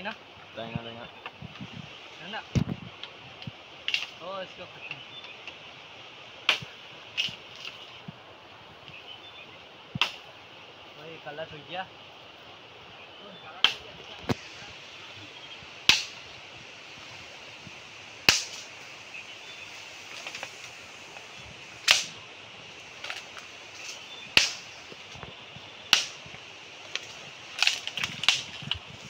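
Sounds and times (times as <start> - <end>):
machete chopping bamboo: 6.5 - 7.4, 10.0 - 10.3, 13.6 - 13.8, 15.9 - 16.2, 18.2 - 18.7, 21.8 - 22.2, 24.3 - 24.7, 25.9 - 26.2.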